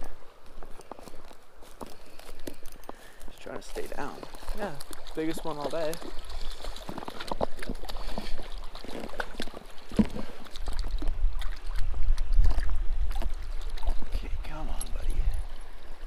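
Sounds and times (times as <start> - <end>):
low rumble of wading: 3.7 - 16.0
fish splashing in stream: 4.2 - 14.1.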